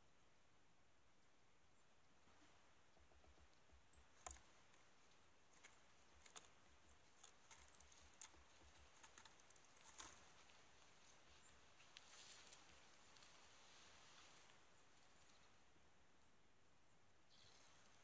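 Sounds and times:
faint small clicks: 5.5s - 10.6s, 11.8s - 13.3s.

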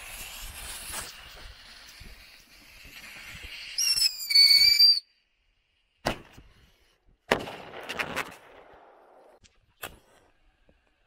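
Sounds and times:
whistling firework shrieking: 0.0s - 5.2s
firework bang: 7.3s - 8.7s.

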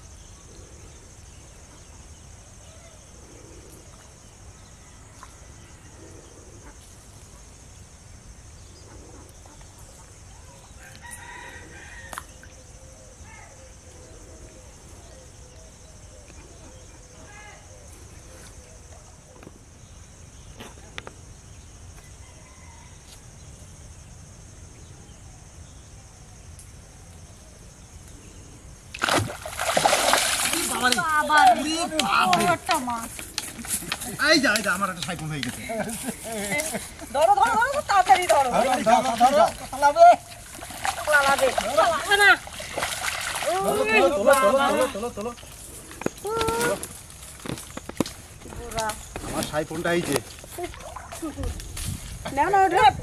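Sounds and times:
insects droning: 0.0s - 53.0s.

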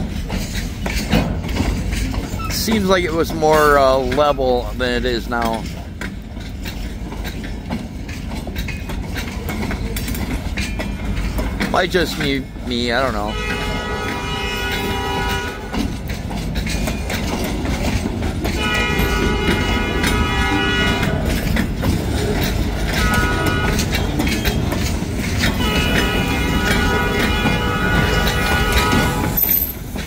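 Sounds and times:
rolling train rumble and clatter: 0.0s - 30.0s
locomotive horn blasts: 13.0s - 16.0s, 18.5s - 21.6s, 22.7s - 24.3s, 25.3s - 29.7s.

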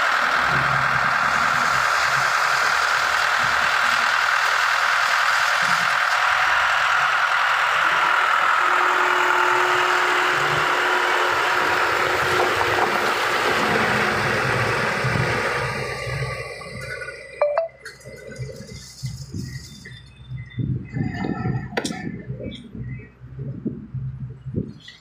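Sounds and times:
heavy diesel machinery running: 0.0s - 25.0s
steady hum: 17.4s - 25.0s.

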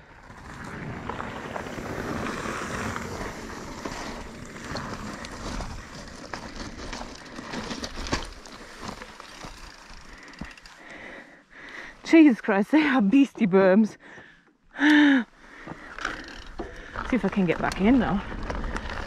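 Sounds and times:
bike tyres on gravel: 0.0s - 11.4s, 15.4s - 19.0s
bike clicks and rattles: 0.3s - 11.8s, 15.6s - 19.0s.

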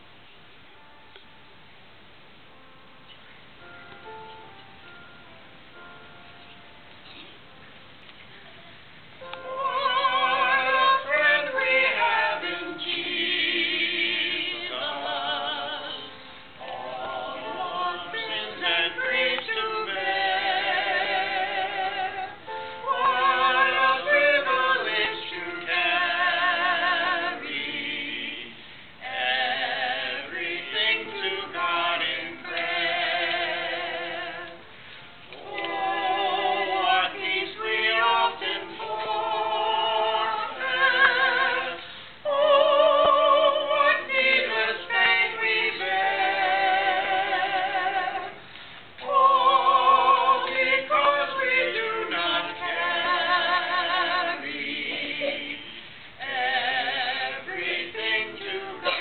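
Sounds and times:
group singing in harmony: 9.2s - 59.0s
singers breathing: 28.6s - 29.0s, 34.7s - 35.2s, 41.8s - 42.2s, 48.4s - 49.0s, 55.8s - 56.2s.

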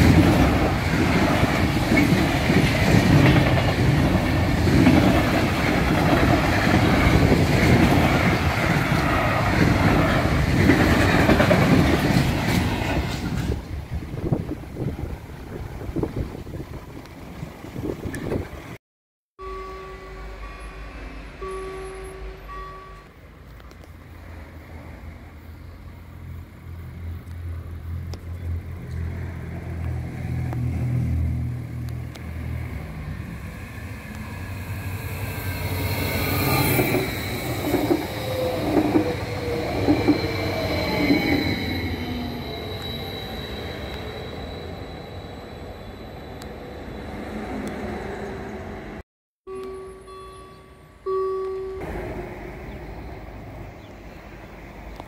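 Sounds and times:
train passing: 0.0s - 18.8s, 19.4s - 55.0s
train wheels beating: 34.7s - 44.2s.

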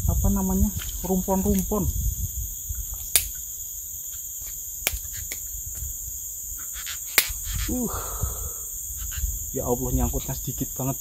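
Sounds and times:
insects chirring: 0.0s - 11.0s
sharp clicks: 3.0s - 3.4s, 4.8s - 5.5s, 7.0s - 7.6s.

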